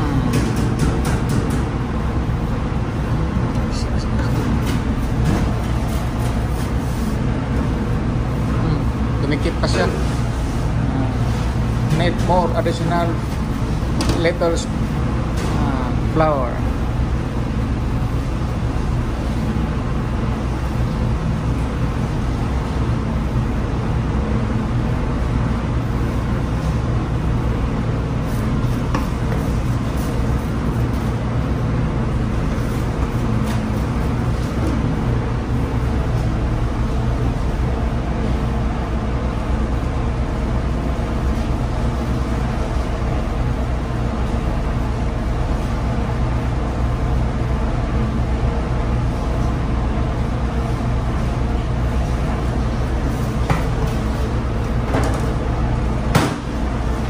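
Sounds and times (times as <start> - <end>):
ship machinery drone: 0.0 - 0.8, 1.6 - 5.3.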